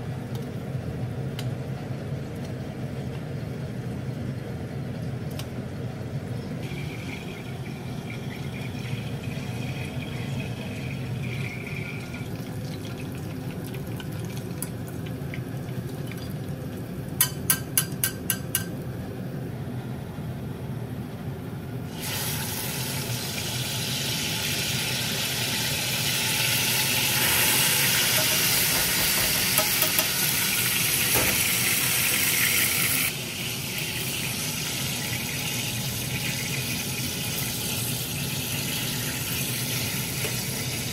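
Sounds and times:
metal clinks on pot: 0:17.2 - 0:18.8
butter sizzling in frying pan: 0:21.9 - 0:40.9.

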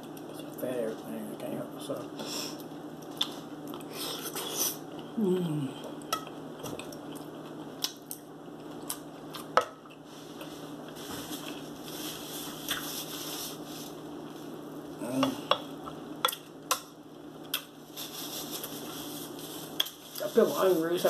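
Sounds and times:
paper napkin rustling: 0:10.1 - 0:14.6, 0:17.9 - 0:21.0.

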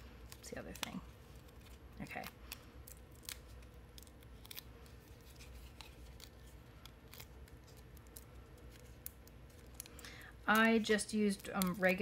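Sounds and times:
cardstock ticks and crinkles: 0:00.2 - 0:12.0.

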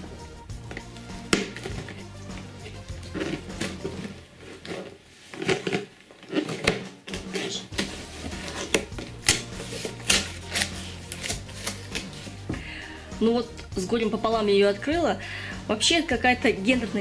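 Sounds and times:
cardboard scraping and crinkling: 0:01.5 - 0:12.4
cardboard tearing snaps: 0:06.5 - 0:12.2.

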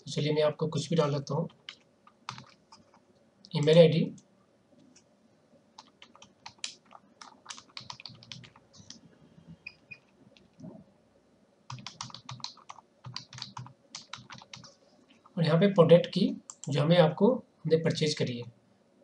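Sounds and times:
keyboard typing: 0:01.4 - 0:03.1, 0:05.8 - 0:09.0, 0:11.7 - 0:15.4.

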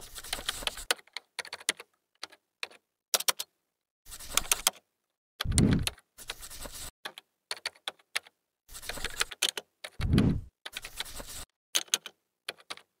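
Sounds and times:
loud low thud: 0:10.0 - 0:10.5.

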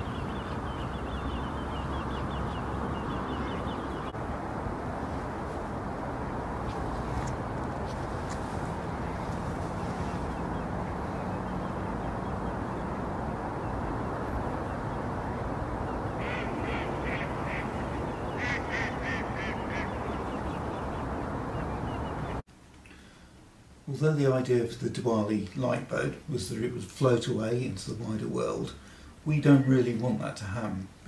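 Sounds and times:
outdoor background noise: 0:00.0 - 0:31.0
duck quacking: 0:16.2 - 0:20.0.

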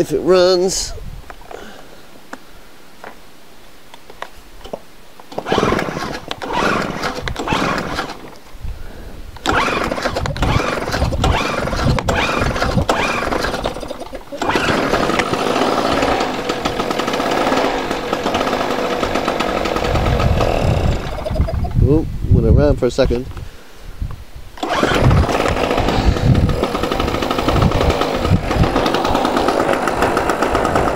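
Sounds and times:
generator engine pull-started: 0:05.3 - 0:08.4, 0:09.4 - 0:21.7, 0:24.6 - 0:30.9
generator engine running: 0:05.4 - 0:08.3, 0:09.4 - 0:21.6, 0:24.6 - 0:30.9.

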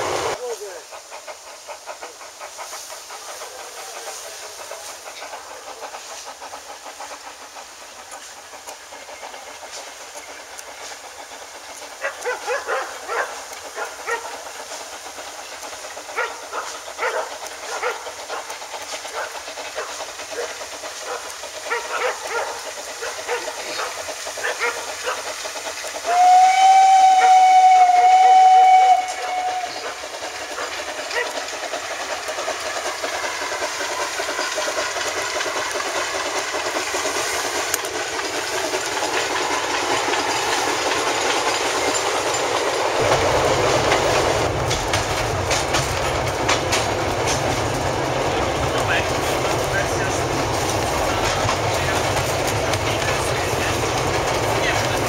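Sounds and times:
steam locomotive hiss: 0:00.0 - 0:55.0
locomotive exhaust beats: 0:00.3 - 0:55.0
steam whistle blast: 0:26.1 - 0:29.8.

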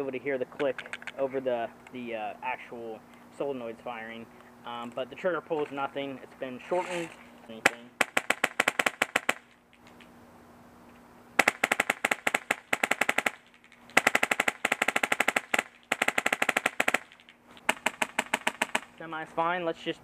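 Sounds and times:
airsoft rifle rapid pneumatic shots: 0:06.9 - 0:09.5, 0:11.4 - 0:19.0.

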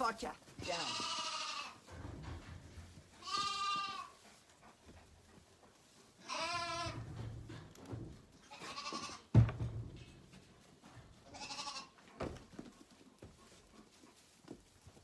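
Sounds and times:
lambs bleating: 0:00.6 - 0:01.8, 0:03.2 - 0:04.2, 0:06.2 - 0:07.0, 0:08.5 - 0:09.3, 0:11.3 - 0:12.0.

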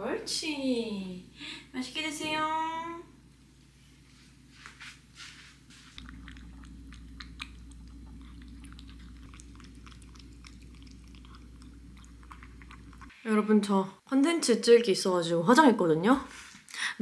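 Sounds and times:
cat chewing wet food: 0:06.0 - 0:13.1.

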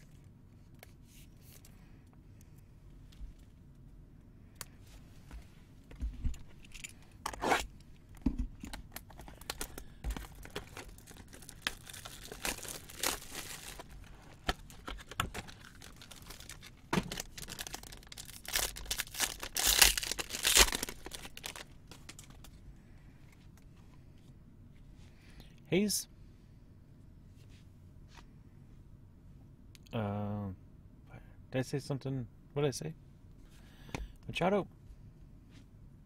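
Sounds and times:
plastic wrapper crinkling: 0:08.8 - 0:22.6.

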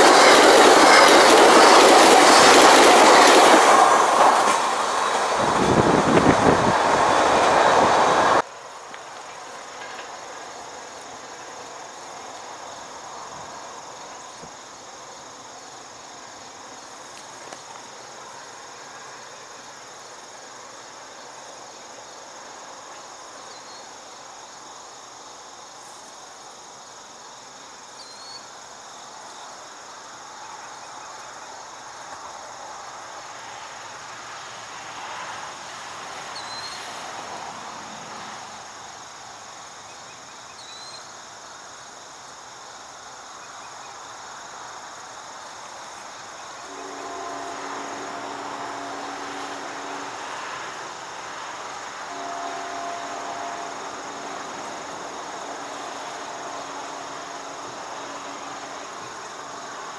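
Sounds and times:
crickets and insects chorus: 0:00.0 - 0:59.9
faint rushing haze: 0:46.0 - 0:59.9.

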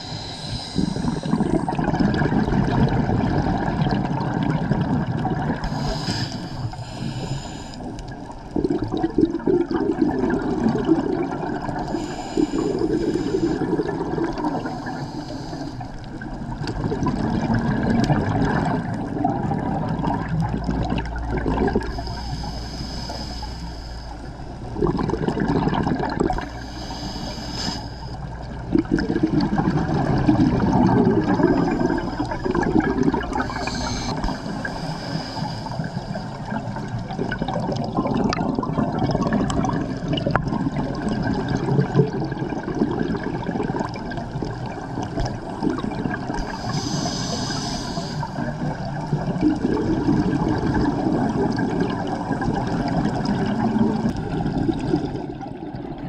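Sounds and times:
regulator inhale hiss: 0:00.0 - 0:01.6, 0:05.6 - 0:08.2, 0:11.7 - 0:16.3, 0:21.9 - 0:24.6, 0:26.4 - 0:28.3, 0:31.2 - 0:32.6, 0:33.2 - 0:36.8, 0:46.3 - 0:48.8
exhaled bubbles gurgling: 0:00.0 - 0:56.0.

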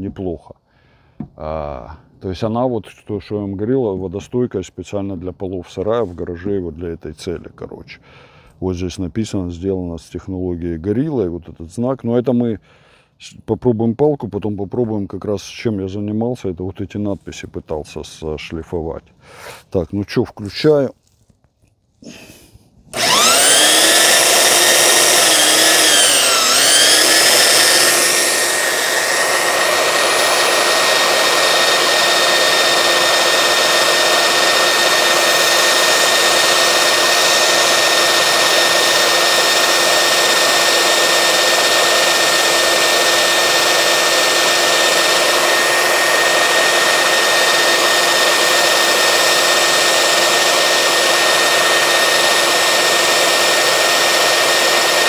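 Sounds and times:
belt sander whining: 0:22.9 - 0:55.0
wood stick grinding on sanding belt: 0:23.0 - 0:55.0.

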